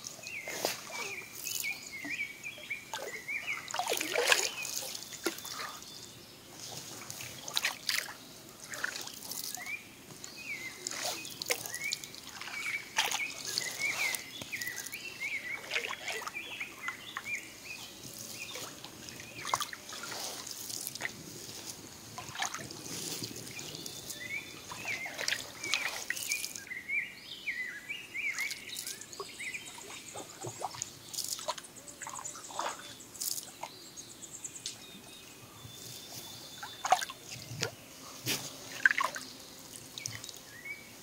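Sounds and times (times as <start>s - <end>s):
paddle strokes in water: 0.0s - 1.7s, 2.9s - 5.8s, 6.6s - 9.7s, 10.4s - 26.6s, 29.2s - 33.0s, 36.6s - 39.2s
water dripping off paddle: 2.9s - 5.8s, 10.8s - 15.0s, 24.7s - 26.7s, 28.4s - 33.7s
small bird chirping: 23.6s - 37.6s.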